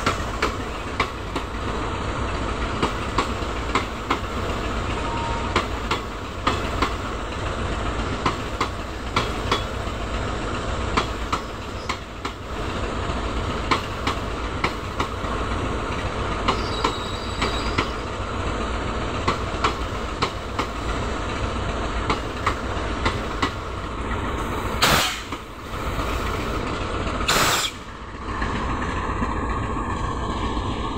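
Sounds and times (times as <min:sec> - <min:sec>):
train rumble: 0:00.0 - 0:30.9
train wheels clicking over rail joints: 0:00.0 - 0:30.9
faint wheel squeal: 0:16.5 - 0:18.1.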